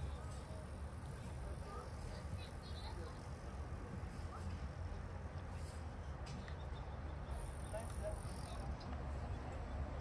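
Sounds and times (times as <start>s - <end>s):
faint distant voices: 0.0s - 10.0s.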